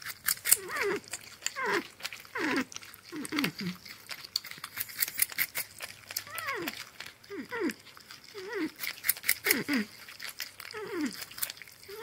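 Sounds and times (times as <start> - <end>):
wet chewing clicks: 0.0 - 12.0
porcupine whining calls: 6.3 - 10.0.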